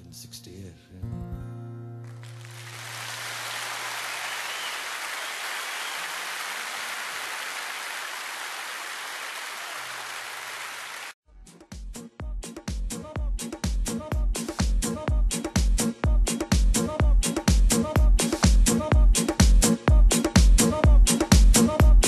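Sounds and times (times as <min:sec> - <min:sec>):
audience applauding: 0:02.1 - 0:11.2.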